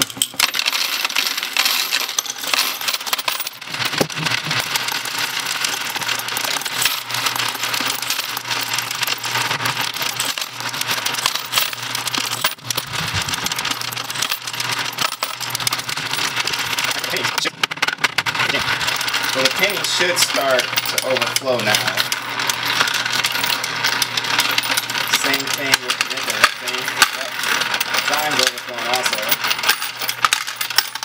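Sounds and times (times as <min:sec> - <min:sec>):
coins clattering through sorter: 0:00.0 - 0:31.0
low motor hum: 0:12.5 - 0:13.8.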